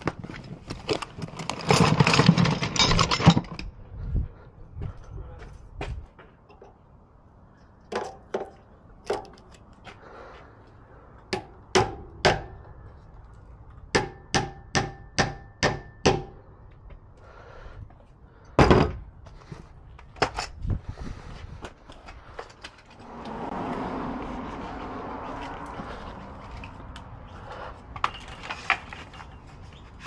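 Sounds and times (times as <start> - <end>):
hammer striking masonry wall: 11.3 - 12.7, 13.9 - 16.4.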